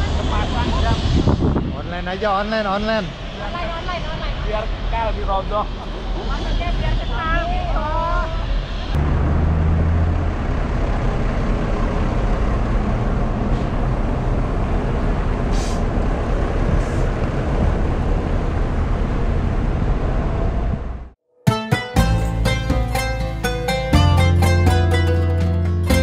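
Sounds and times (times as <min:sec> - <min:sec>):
traffic rumble and hiss: 0:00.0 - 0:21.1
deep engine hum: 0:07.8 - 0:21.2.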